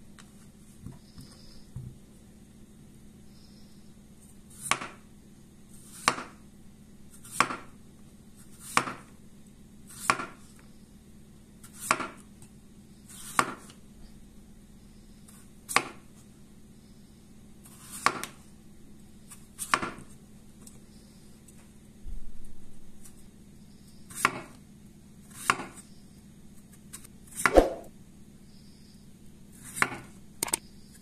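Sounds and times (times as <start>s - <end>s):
knife slicing potato on board: 4.5s - 5.0s, 5.8s - 6.4s, 7.1s - 7.7s, 8.5s - 9.1s, 9.9s - 10.4s, 11.6s - 12.2s, 13.1s - 13.8s, 17.6s - 18.4s, 25.3s - 25.8s, 27.0s - 27.9s, 29.6s - 30.1s.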